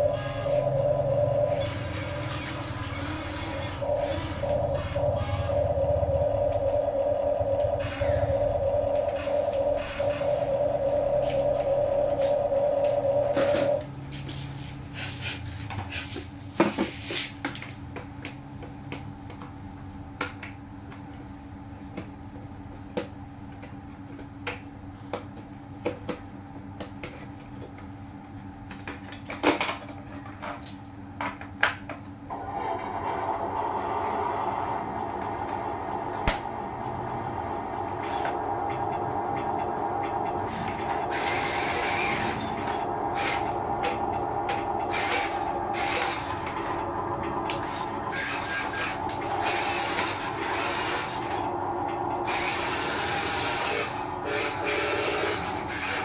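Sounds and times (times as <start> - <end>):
small electric motors running: 0.0 - 5.8, 47.4 - 56.0
steady motor whine: 0.0 - 14.7, 32.3 - 56.0.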